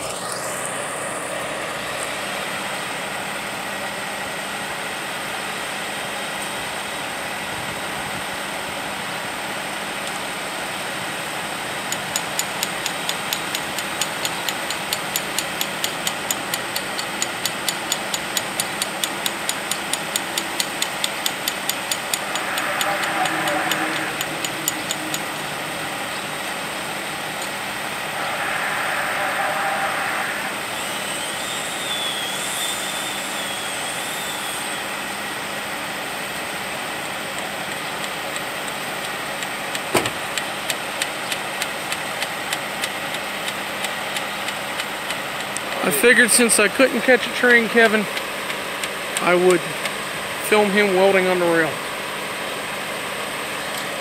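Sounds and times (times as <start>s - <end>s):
sharp even ticks: 11.9s - 25.5s.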